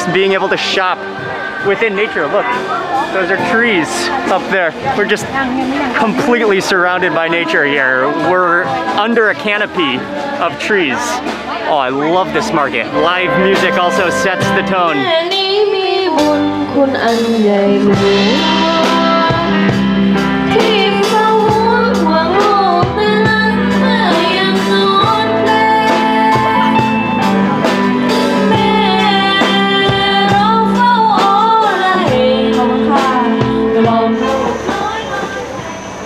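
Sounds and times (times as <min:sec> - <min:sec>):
live instrumental music with beat: 0:00.0 - 0:36.0
person singing: 0:12.0 - 0:19.8, 0:28.2 - 0:36.0.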